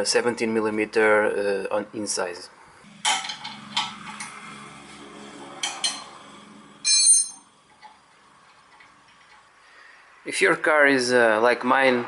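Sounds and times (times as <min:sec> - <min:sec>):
ringing metallic clink: 0:06.8 - 0:07.5
metal clinks and knocks: 0:06.9 - 0:07.9.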